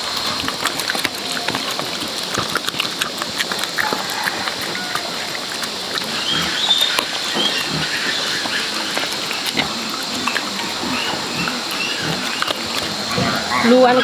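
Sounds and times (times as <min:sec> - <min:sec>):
animals chewing wet food: 0:00.0 - 0:14.0.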